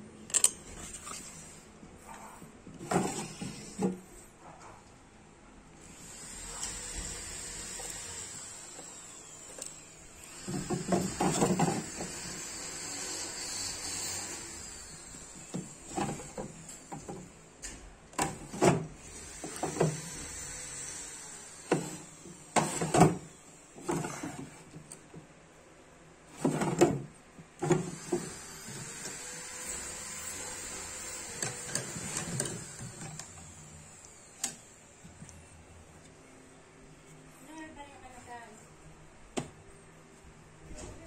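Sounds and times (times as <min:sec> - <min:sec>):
wooden drawers sliding and knocking: 0:02.7 - 0:04.0, 0:23.8 - 0:24.8, 0:26.3 - 0:28.3.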